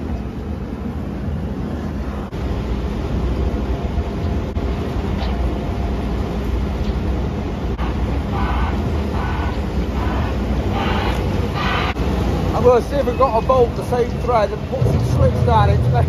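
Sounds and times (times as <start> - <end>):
large engine idling: 7.1 - 16.0.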